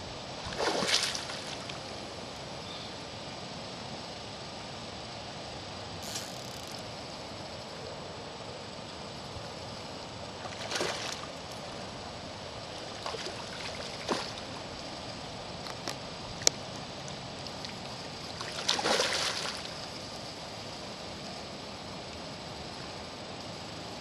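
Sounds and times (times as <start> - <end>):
fish splashing at surface: 0.5 - 1.7, 18.4 - 19.7.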